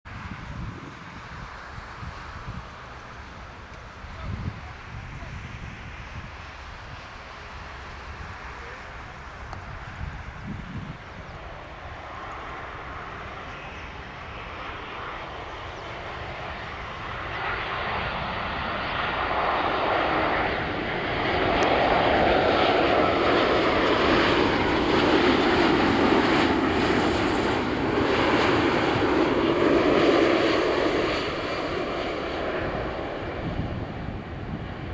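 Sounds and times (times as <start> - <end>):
jet airliner passing: 0.1 - 34.9
jet engine whine: 0.1 - 34.9.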